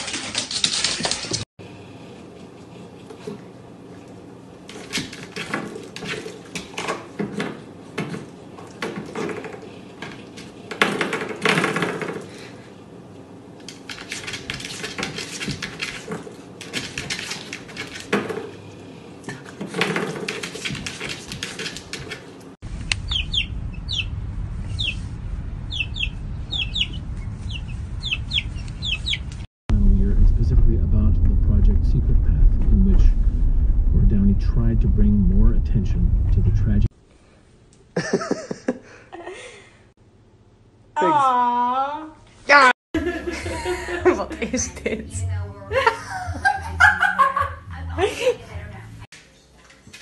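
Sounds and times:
low steady rumble: 0:22.6 - 0:36.9
baby chicks peeping: 0:23.0 - 0:24.1, 0:24.7 - 0:25.1, 0:25.7 - 0:29.4.

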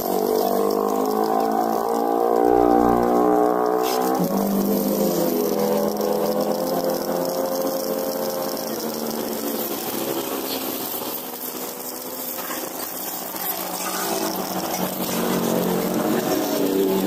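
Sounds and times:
air washing gun spraying water: 0:00.0 - 0:17.0.

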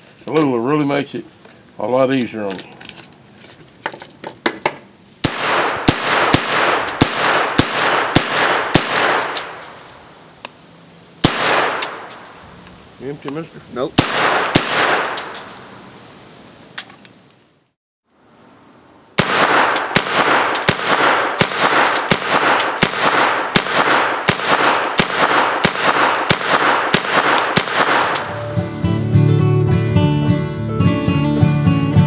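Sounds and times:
gunshots: 0:05.2 - 0:10.0, 0:11.2 - 0:12.4, 0:14.0 - 0:15.6, 0:19.2 - 0:28.6.

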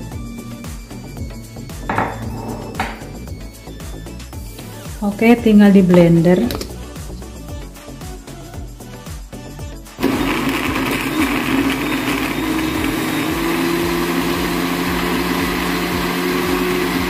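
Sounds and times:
electric blender running: 0:10.0 - 0:17.0.

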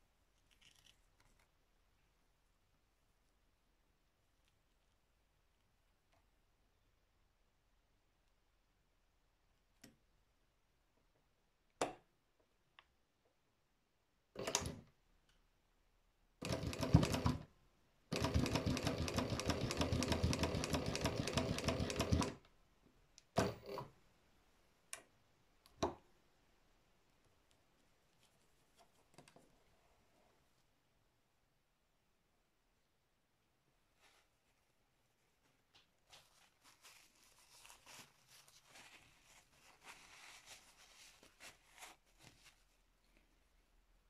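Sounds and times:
sewing machine stitching: 0:14.4 - 0:14.8, 0:16.4 - 0:17.5, 0:18.1 - 0:22.4, 0:23.4 - 0:23.9.

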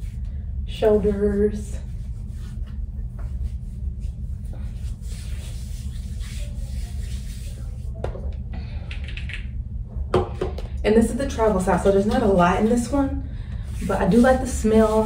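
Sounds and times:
steady low hum: 0:00.0 - 0:15.0
faint rubbing and handling: 0:01.6 - 0:08.1, 0:13.6 - 0:15.0.

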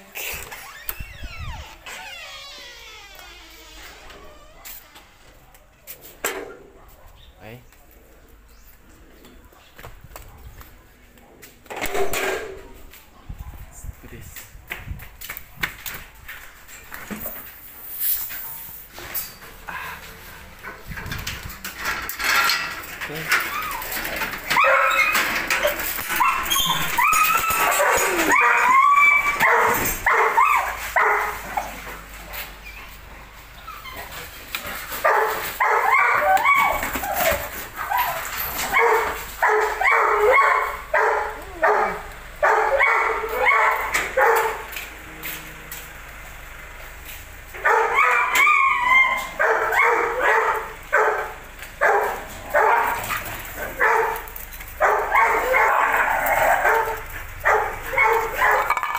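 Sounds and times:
dog whining and yipping: 0:00.4 - 0:03.0, 0:23.4 - 0:31.8, 0:35.6 - 0:40.6, 0:47.7 - 0:50.4
dog barking: 0:06.6 - 0:08.0, 0:24.5 - 0:25.2, 0:26.1 - 0:31.7, 0:35.0 - 0:36.8, 0:37.9 - 0:44.7, 0:47.6 - 0:58.9.

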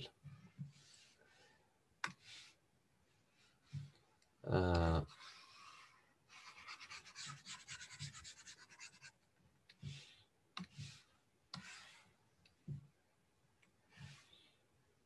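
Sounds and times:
stylus scratching on tablet: 0:05.1 - 0:12.2.

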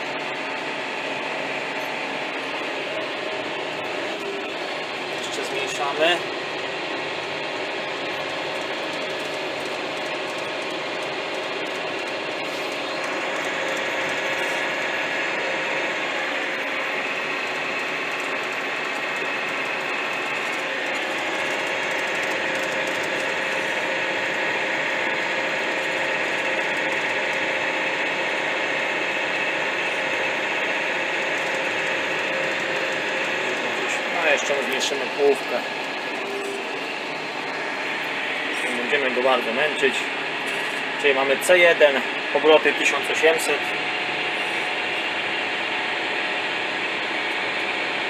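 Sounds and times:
gear whine: 0:00.0 - 0:48.0
tractor diesel engine drone: 0:00.0 - 0:48.0.

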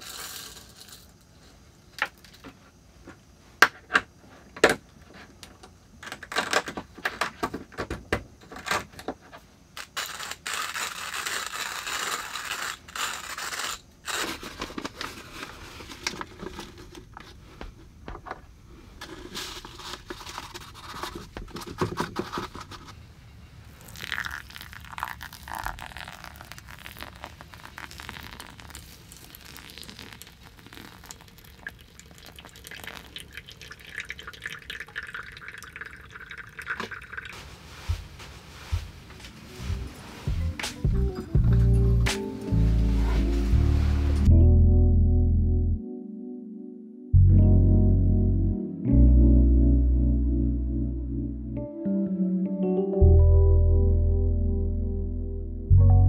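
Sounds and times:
hand coffee grinder cranking: 0:09.8 - 0:14.4
paper filter rustling: 0:10.2 - 0:17.5, 0:18.9 - 0:23.0
hot water trickling onto coffee: 0:23.7 - 0:37.4.

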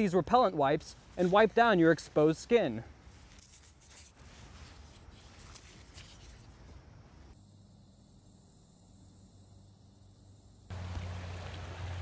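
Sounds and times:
packet rustling and skin wiping: 0:03.1 - 0:06.7
steady high hiss: 0:06.4 - 0:12.0.

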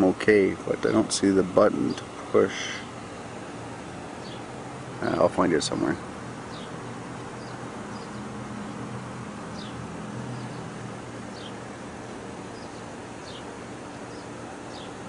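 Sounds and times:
even hiss: 0:00.0 - 0:14.8
steady low hum: 0:00.0 - 0:15.0.

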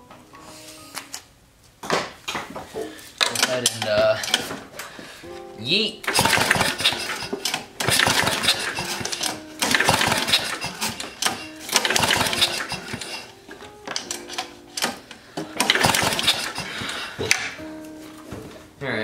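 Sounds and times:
engine pull-start cranking: 0:03.2 - 0:04.5, 0:06.0 - 0:13.3, 0:13.9 - 0:17.5.

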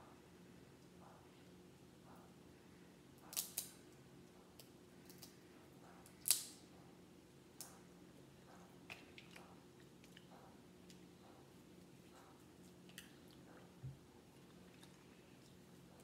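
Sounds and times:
faint steady hum: 0:00.0 - 0:16.0
shell cracking and snapping: 0:03.3 - 0:03.8, 0:06.2 - 0:06.6.

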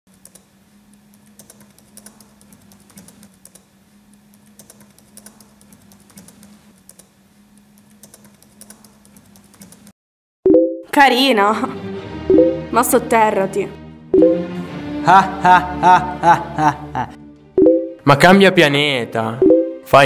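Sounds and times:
typing on laptop keyboard: 0:01.1 - 0:03.7, 0:04.3 - 0:07.1, 0:07.8 - 0:09.9.

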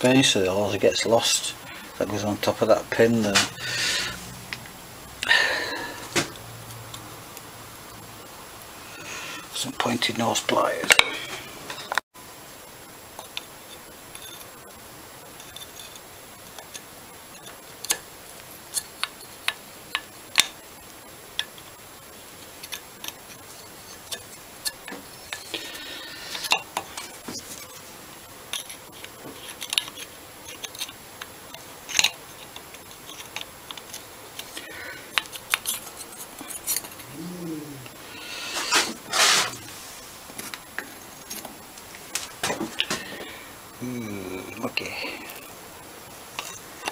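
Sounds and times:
metal scraping: 0:38.4 - 0:40.1.

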